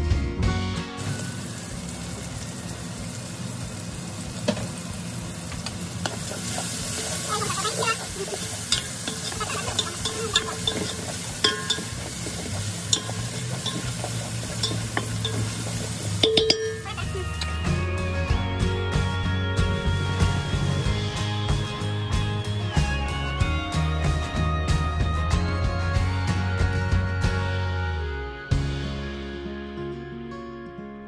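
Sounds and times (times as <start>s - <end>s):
food sizzling in hot oil: 1.0s - 17.8s
spatula knocking against pot: 8.7s - 17.2s.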